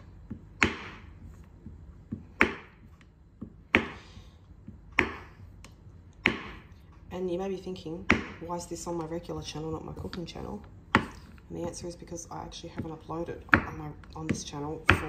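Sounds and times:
knife chopping on wooden board: 0:00.2 - 0:04.0, 0:04.7 - 0:05.4, 0:06.2 - 0:06.7, 0:08.0 - 0:08.4, 0:10.9 - 0:11.4, 0:12.7 - 0:15.0.

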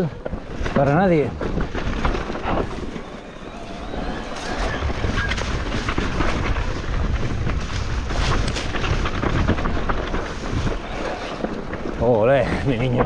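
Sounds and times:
bike rolling over loose stones: 0:00.0 - 0:13.0
wind buffeting microphone: 0:00.0 - 0:13.0
clicks and knocks from bike: 0:05.2 - 0:13.0.

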